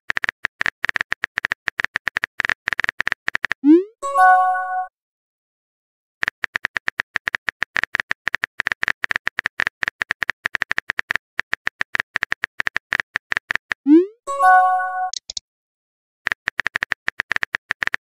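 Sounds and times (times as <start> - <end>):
phone keyboard typing clicks: 0.1 - 3.6, 6.2 - 13.8, 15.1 - 15.4, 16.3 - 18.0.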